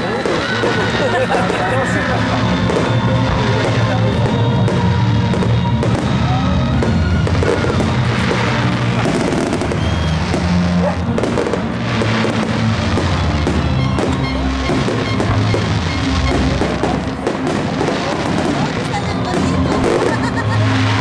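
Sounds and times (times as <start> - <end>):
fireworks bursting and crackling: 0.0 - 21.0
loud music with bass line: 4.6 - 18.3.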